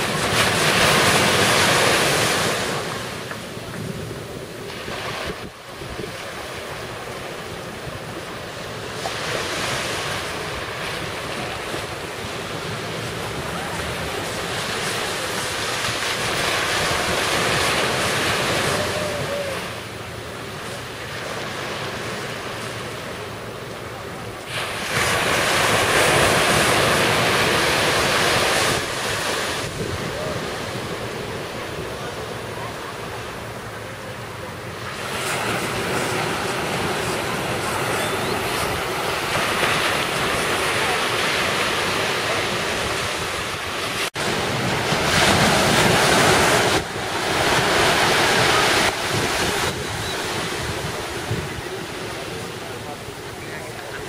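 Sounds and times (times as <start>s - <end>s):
surf breaking on shore: 0.0s - 54.0s
wind buffeting microphone: 24.9s - 33.6s, 34.4s - 54.0s.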